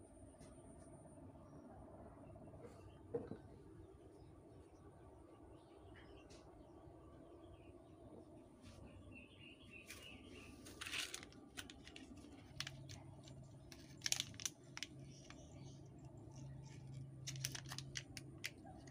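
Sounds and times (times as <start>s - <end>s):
foil sachets crinkling: 10.6s - 15.4s, 16.4s - 18.9s.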